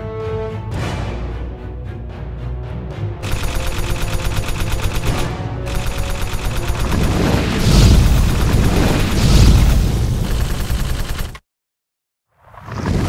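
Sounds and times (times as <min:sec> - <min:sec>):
machine-gun fire: 0:03.2 - 0:11.4
explosion booms: 0:07.1 - 0:10.2.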